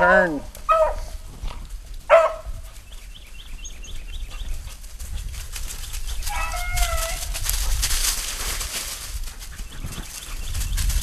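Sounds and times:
dog baying: 0:06.3 - 0:07.4.

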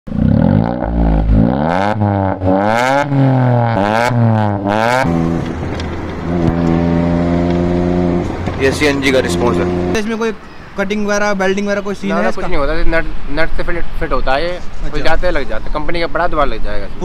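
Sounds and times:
steady engine drone: 0:00.1 - 0:10.0
car engine revving: 0:00.1 - 0:10.2.

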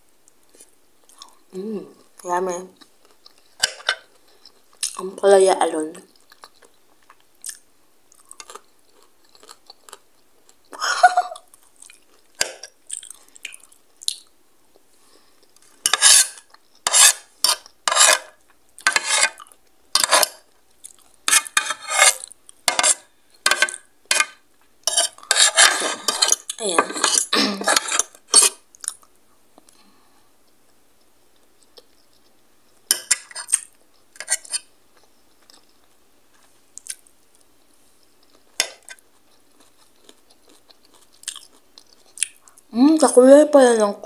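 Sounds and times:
cutlery scraping a plate: 0:15.8 - 0:19.4, 0:20.0 - 0:20.4, 0:21.3 - 0:28.6, 0:32.9 - 0:34.7.

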